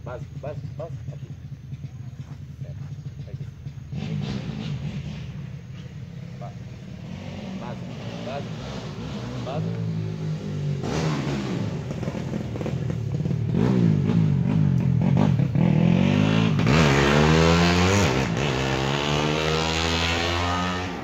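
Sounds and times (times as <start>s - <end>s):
motorcycle engines revving: 0.0s - 21.0s.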